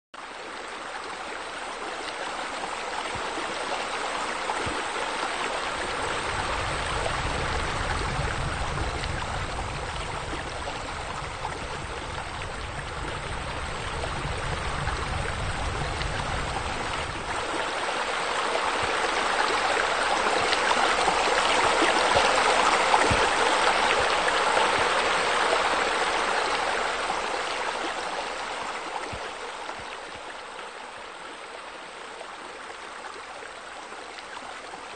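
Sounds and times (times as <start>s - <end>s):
water splashing from waterfall: 0.2s - 34.9s
low rumble: 5.9s - 17.6s.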